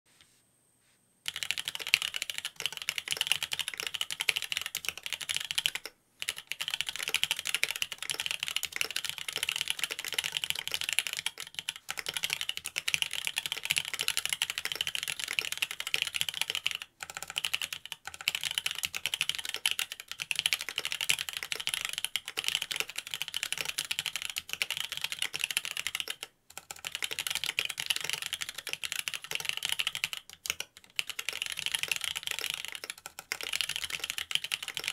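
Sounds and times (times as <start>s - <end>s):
fast mechanical keyboard typing: 1.3s - 34.9s.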